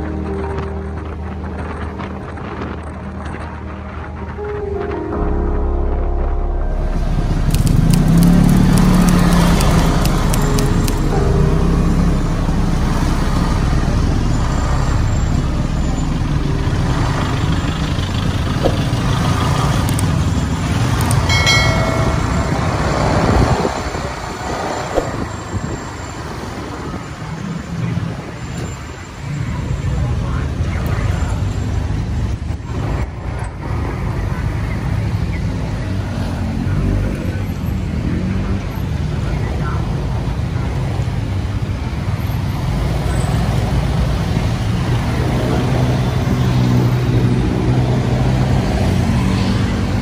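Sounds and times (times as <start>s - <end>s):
traffic engines running: 0.0s - 5.0s, 6.6s - 50.0s
road rumble: 0.0s - 50.0s
brief high tone: 4.4s - 19.7s, 21.2s - 26.2s.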